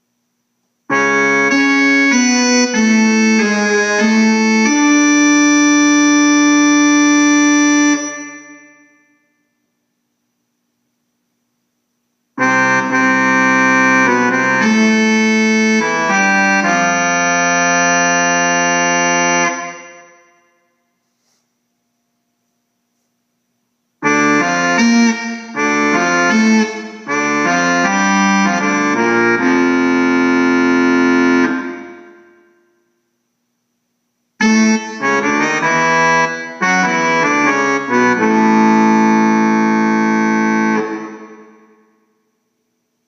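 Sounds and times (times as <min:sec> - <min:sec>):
electronic keyboard chords and melody: 0:00.9 - 0:09.0, 0:12.4 - 0:20.5, 0:24.0 - 0:32.5, 0:34.4 - 0:41.9.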